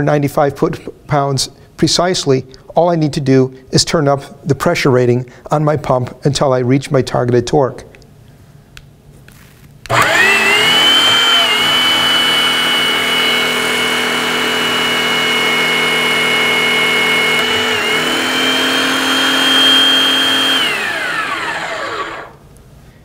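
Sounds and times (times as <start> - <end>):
hydraulic pump motor whining: 9.9 - 22.4.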